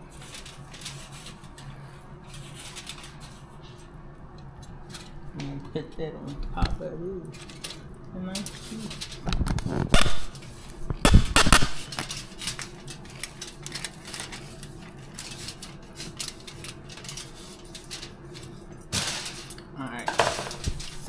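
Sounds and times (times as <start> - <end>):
utensils and dishes clinking: 7.2 - 21.0.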